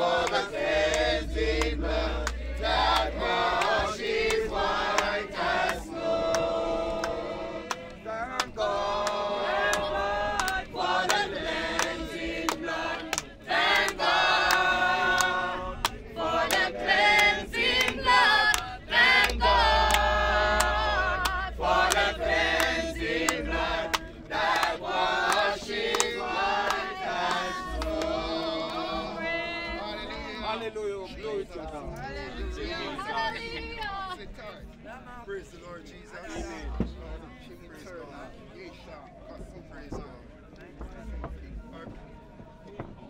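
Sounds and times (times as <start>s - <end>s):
group singing a hymn: 0.0s - 34.3s.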